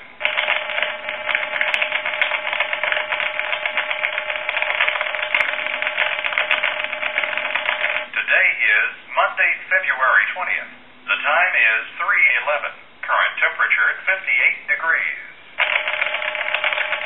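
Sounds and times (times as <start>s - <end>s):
thin digital clatter: 0.2s - 8.1s.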